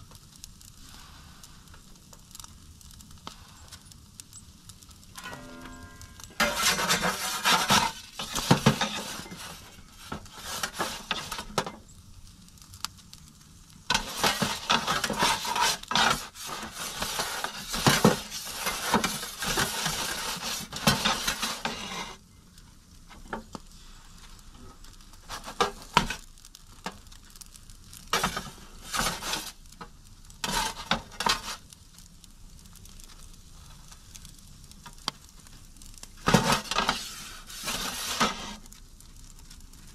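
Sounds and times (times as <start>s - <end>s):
metal peel scraping oven floor: 5.2s - 11.8s, 13.9s - 22.2s, 25.3s - 26.2s, 28.1s - 29.6s, 30.4s - 31.7s, 36.2s - 38.7s.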